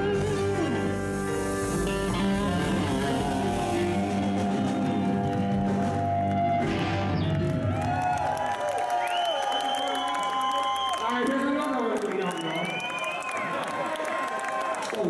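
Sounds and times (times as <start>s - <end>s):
sustained electric guitar chords: 0.0s - 7.9s
live rock band playing: 0.0s - 8.1s.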